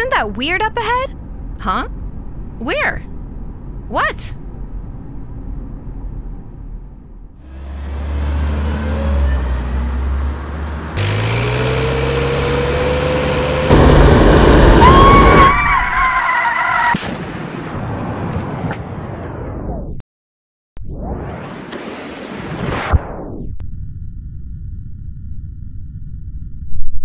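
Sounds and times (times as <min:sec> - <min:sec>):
tyres skidding and squealing: 0:07.4 - 0:17.0.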